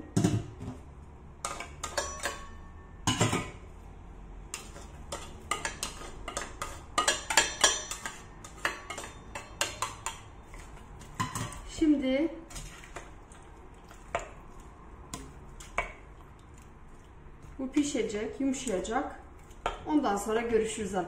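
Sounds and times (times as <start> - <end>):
metal bowls clinking on pot: 1.4 - 3.6, 4.5 - 11.8.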